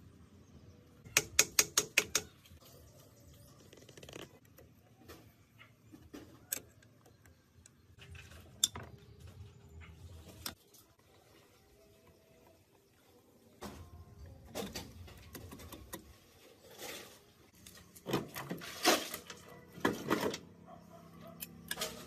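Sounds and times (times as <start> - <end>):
screwdriver tapping metal: 1.1 - 2.3.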